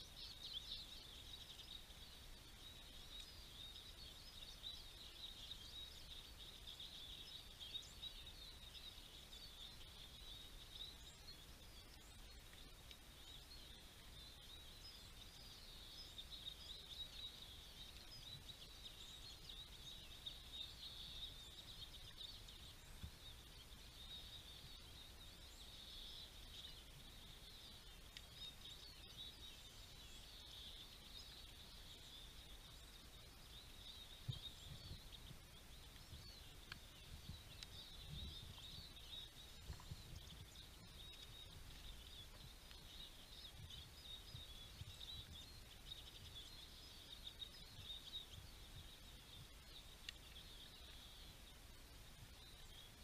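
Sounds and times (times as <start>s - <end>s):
small songbirds twittering: 0.0s - 53.0s
soft low thumps: 34.2s - 46.4s.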